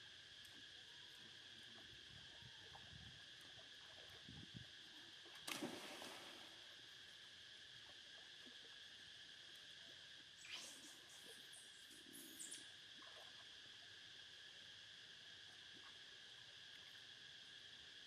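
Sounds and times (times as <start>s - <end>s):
insects droning: 0.0s - 18.0s
splashes in water: 5.5s - 6.6s.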